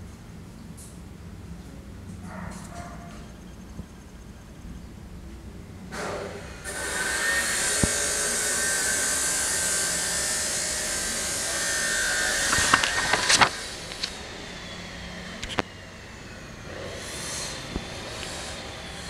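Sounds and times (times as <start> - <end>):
hiss with whistling tone: 13.7 - 19.0.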